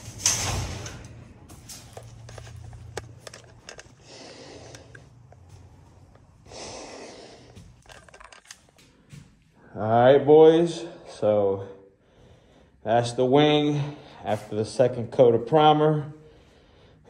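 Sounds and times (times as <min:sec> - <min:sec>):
breathy puffs of breathing: 0:03.8 - 0:05.8, 0:06.4 - 0:07.8, 0:11.8 - 0:12.9, 0:16.2 - 0:17.0.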